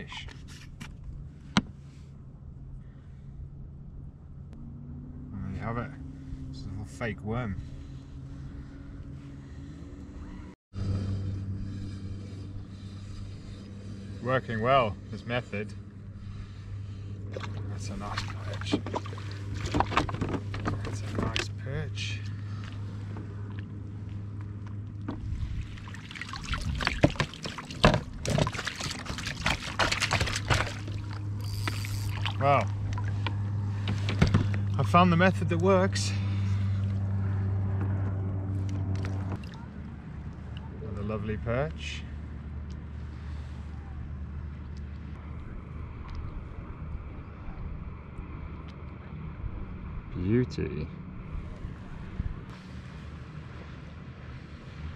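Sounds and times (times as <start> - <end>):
low hum: 0.0 - 54.9
water splashing and dripping: 17.3 - 20.9, 25.4 - 33.3
wind buffeting microphone: 25.2 - 27.3.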